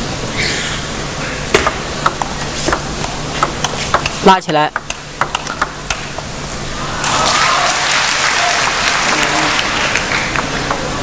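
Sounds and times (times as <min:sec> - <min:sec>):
table tennis ball clicks: 0:01.6 - 0:06.0
crowd applauding: 0:06.9 - 0:10.9.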